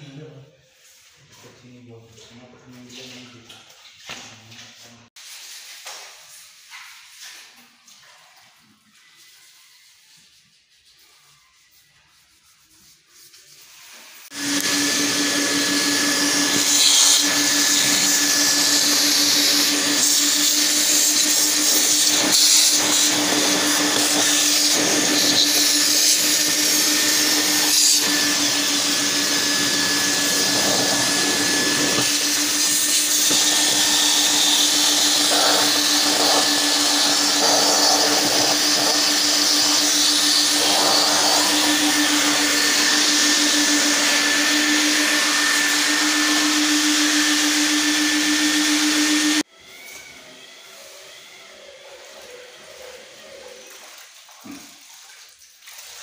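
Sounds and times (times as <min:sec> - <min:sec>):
nozzle sucking debris: 0:14.3 - 0:49.1
vacuum cleaner running: 0:14.3 - 0:53.7.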